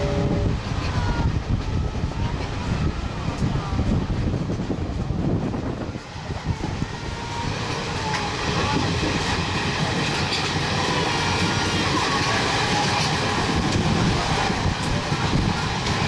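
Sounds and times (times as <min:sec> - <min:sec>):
train wheels rumbling on track: 0:00.0 - 0:16.0.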